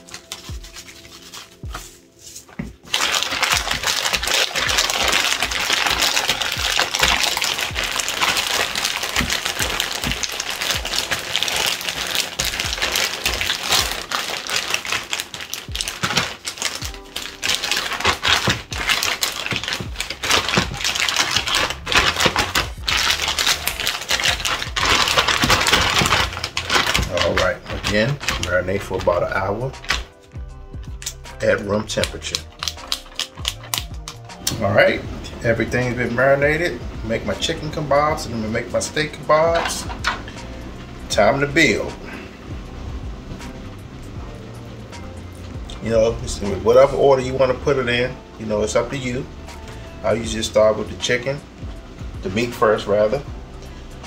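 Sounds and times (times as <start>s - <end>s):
plastic bag crinkling: 0.0s - 30.3s, 31.0s - 34.9s.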